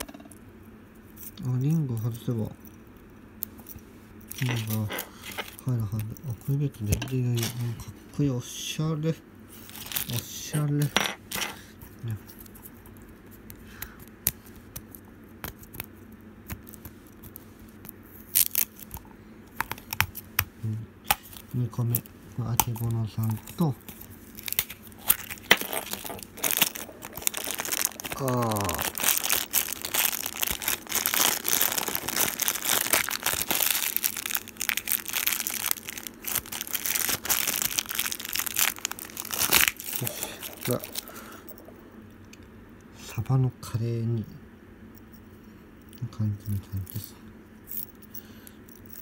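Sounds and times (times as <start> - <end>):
plastic bag crinkling: 4.3 - 6.1, 9.7 - 10.4, 22.7 - 41.8.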